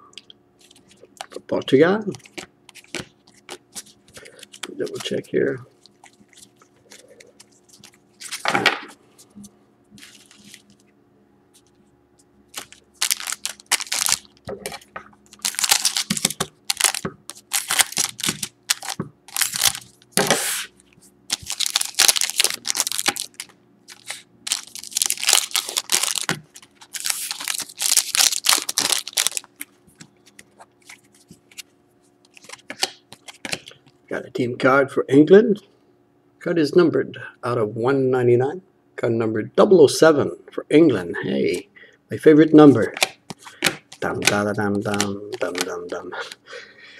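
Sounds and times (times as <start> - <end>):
foil wrappers crinkling: 10.0 - 10.9, 12.5 - 20.7, 21.3 - 31.6, 42.8 - 46.4.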